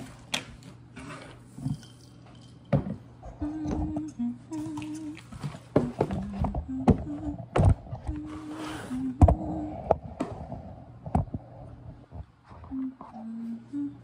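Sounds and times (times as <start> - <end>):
woman humming: 3.2 - 5.2, 5.8 - 10.0, 12.6 - 14.0.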